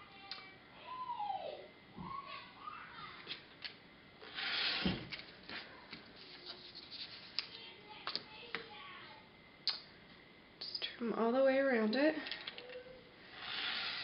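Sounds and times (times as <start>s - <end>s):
rotary cutter slicing fabric: 4.2s - 5.0s, 13.3s - 14.0s.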